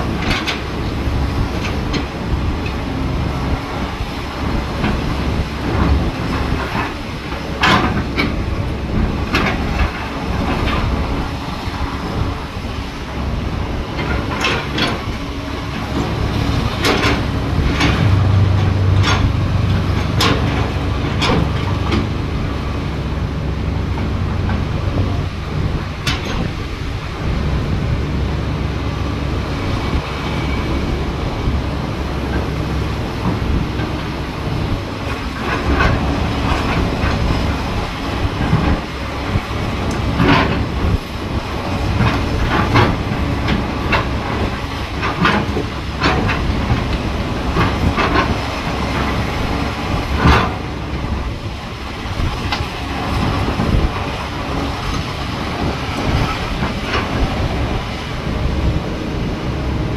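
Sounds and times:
excavator diesel rumble: 0.0 - 59.9
sharp metal clanks and knocks: 16.7 - 22.1.

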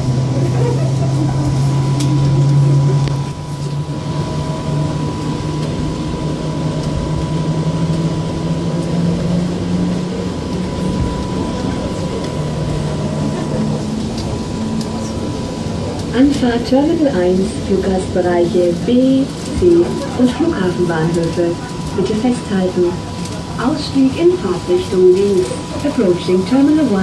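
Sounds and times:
train motor hum: 0.0 - 27.0
train rumble: 0.0 - 27.0.

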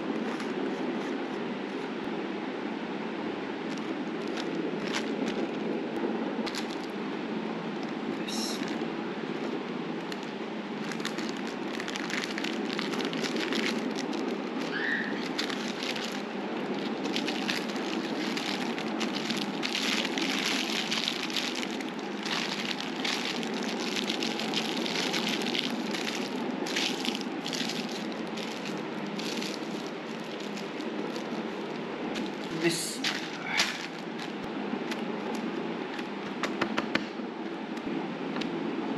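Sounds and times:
steady background rush: 3.2 - 36.2
wrapping sheet crinkling: 3.7 - 5.7, 6.5 - 6.9, 9.4 - 36.1.

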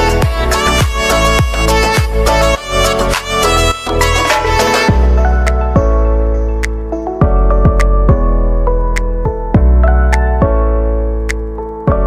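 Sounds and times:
instrumental music with long notes: 0.0 - 12.0.

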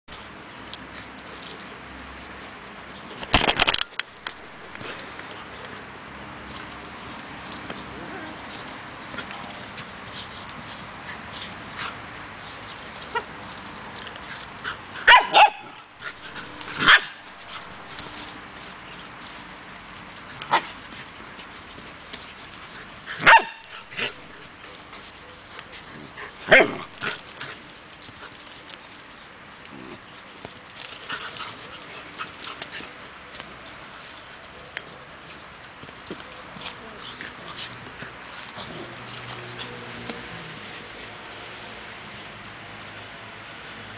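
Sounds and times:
puppies scuffling in dirt: 0.1 - 43.9
puppies barking: 14.8 - 18.3, 22.8 - 27.6.

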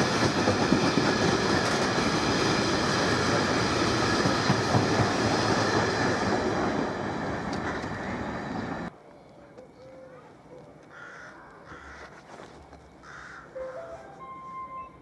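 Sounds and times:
train wagons rumbling on rails: 0.0 - 8.9.

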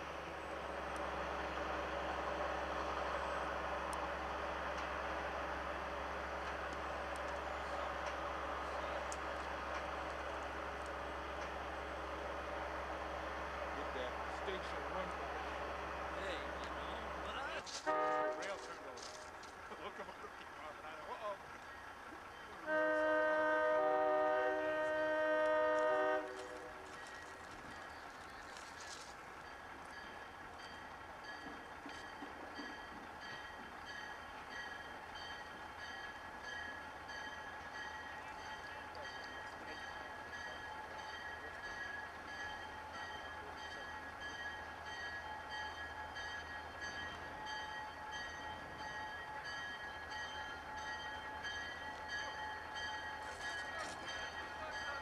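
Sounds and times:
locomotive engine rumble: 0.0 - 55.0
locomotive air horn blast: 17.7 - 18.9, 22.6 - 26.8
locomotive bell ringing: 29.3 - 55.0.

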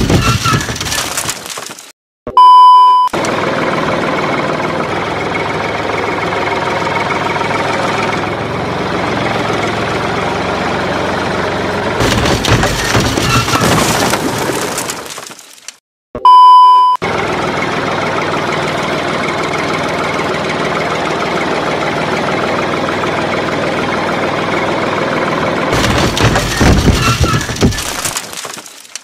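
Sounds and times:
crunching and knocking: 0.0 - 1.9, 12.0 - 15.8, 25.8 - 29.0
high steady test tone beep: 2.3 - 3.1, 16.2 - 17.0
machine engine running: 3.2 - 13.2, 17.0 - 28.1.

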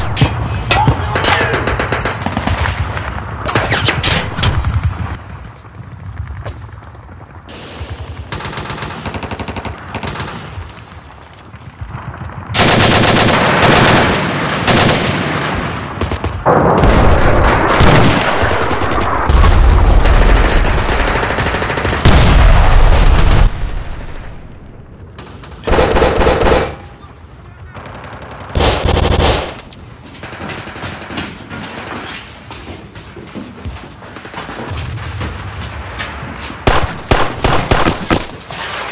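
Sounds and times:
rapid automatic gunfire: 1.5 - 2.6, 7.5 - 10.6, 12.5 - 22.3, 25.4 - 26.9, 27.8 - 29.6, 36.7 - 38.1.

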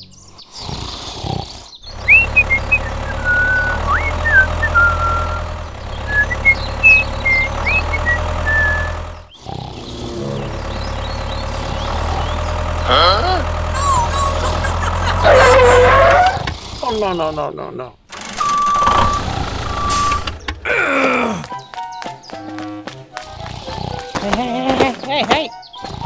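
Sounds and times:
birds chirping: 0.0 - 26.0
low engine hum: 1.8 - 16.6, 18.2 - 20.9.

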